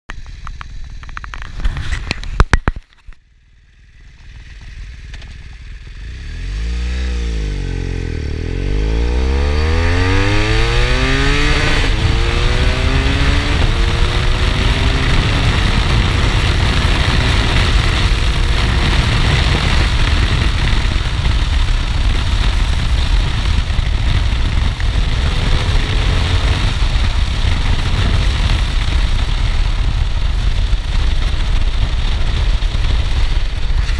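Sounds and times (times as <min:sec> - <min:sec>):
motorcycle accelerating hard: 0:03.7 - 0:33.9
wind rushing at high speed: 0:07.2 - 0:33.9.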